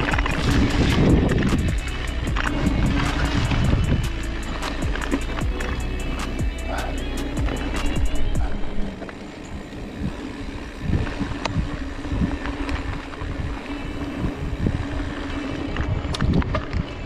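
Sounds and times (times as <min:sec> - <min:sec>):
bike knocks and clicks over bumps: 0:00.0 - 0:13.8, 0:15.3 - 0:17.0
bike tyres humming on dirt: 0:00.0 - 0:17.0
wind on microphone: 0:00.0 - 0:17.0.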